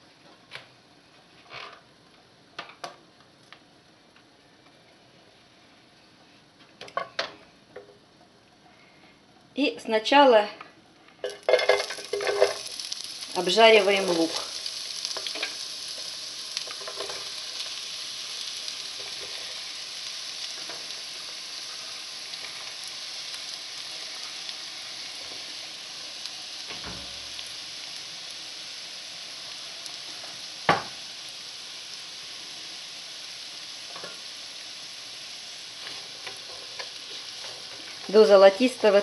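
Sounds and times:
onions sizzling in oil: 11.2 - 39.0.

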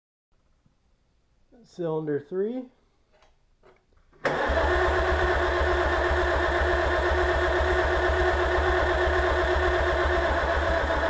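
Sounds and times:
engine cranked by starter: 4.2 - 11.0.

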